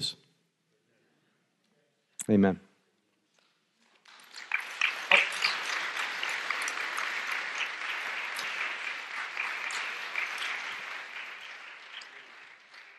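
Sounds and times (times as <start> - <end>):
audience applauding: 4.0 - 12.9.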